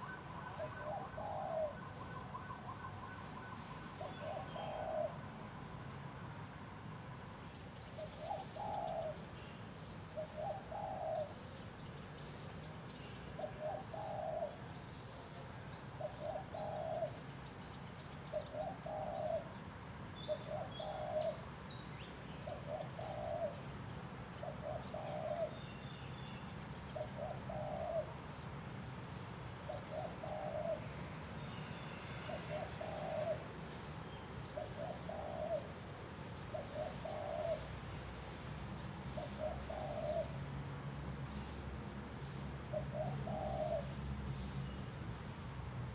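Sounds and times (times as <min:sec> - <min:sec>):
dove cooing: 0:00.0 - 0:05.3, 0:07.9 - 0:09.2, 0:10.0 - 0:11.6, 0:13.4 - 0:15.4, 0:16.0 - 0:17.2, 0:18.3 - 0:19.6, 0:20.3 - 0:21.4, 0:22.4 - 0:23.6, 0:24.4 - 0:25.6, 0:27.0 - 0:28.2, 0:29.7 - 0:31.4, 0:32.2 - 0:35.8, 0:36.4 - 0:40.5, 0:41.5 - 0:44.6.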